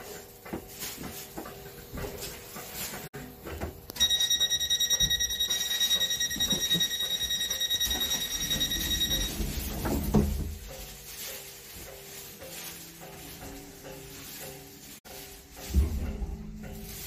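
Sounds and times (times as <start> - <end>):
rapid electronic warning beeps: 4.0 - 9.6.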